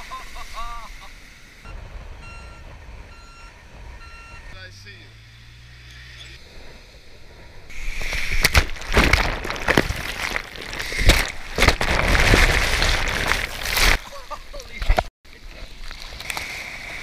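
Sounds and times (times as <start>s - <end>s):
water thudding against camera: 7.8s - 14.0s.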